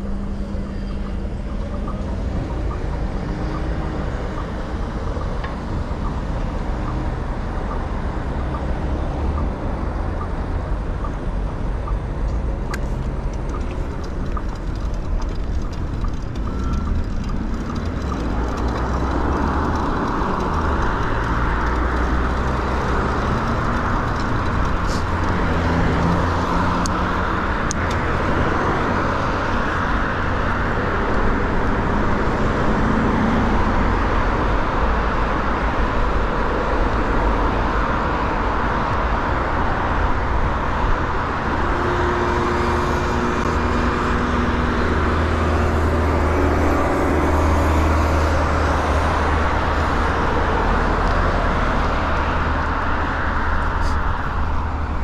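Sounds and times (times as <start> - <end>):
rumble of passing cars: 0.0 - 55.0.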